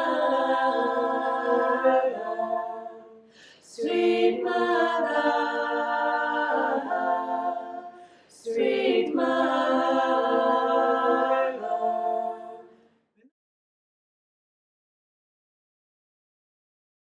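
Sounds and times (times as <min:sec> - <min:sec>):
women singing a cappella: 0:00.0 - 0:12.9.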